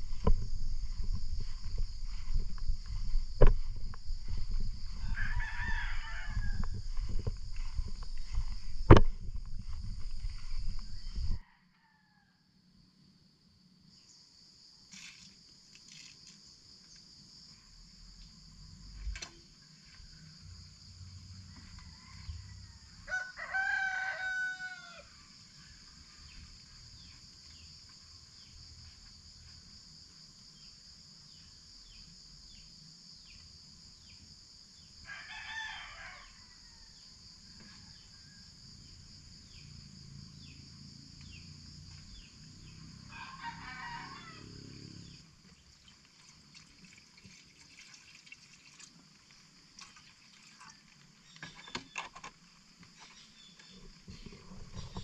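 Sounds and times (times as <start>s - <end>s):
high-pitched insect drone: 0.0s - 11.4s
rooster crowing: 4.8s - 7.7s, 10.4s - 12.6s, 21.3s - 25.8s, 35.0s - 38.8s, 43.0s - 45.2s.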